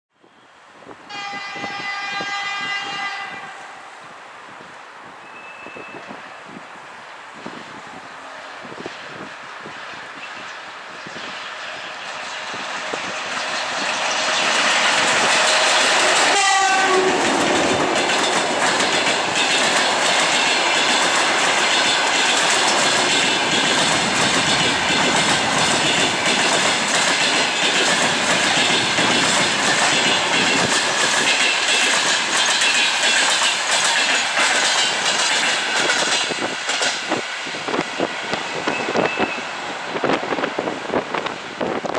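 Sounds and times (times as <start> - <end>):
passenger train passing: 0.2 - 41.9
wheel clacks over rail joints: 13.4 - 37.2.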